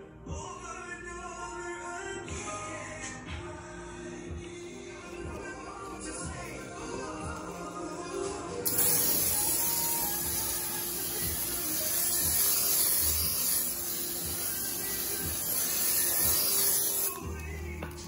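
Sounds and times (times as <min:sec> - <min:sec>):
spray can hissing: 0:08.6 - 0:18.0.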